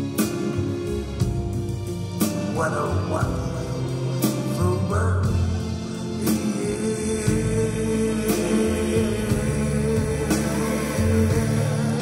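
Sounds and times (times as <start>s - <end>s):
live band playing: 0.0s - 12.0s.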